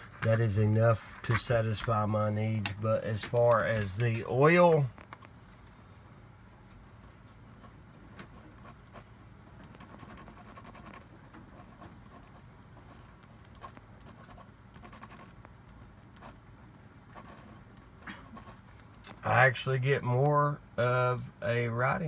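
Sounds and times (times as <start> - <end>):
pen scratching on paper: 6.9 - 16.4, 17.1 - 18.7.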